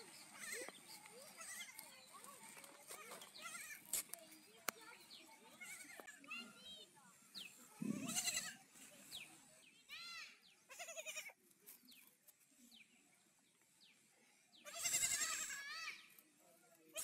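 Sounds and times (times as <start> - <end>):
goat kids bleating: 0.1 - 1.9, 3.4 - 3.8, 7.8 - 8.6, 10.7 - 11.4, 14.6 - 16.1.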